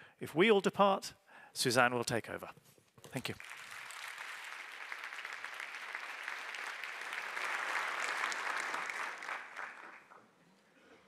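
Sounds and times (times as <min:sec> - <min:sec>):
audience applauding: 0:03.2 - 0:10.4.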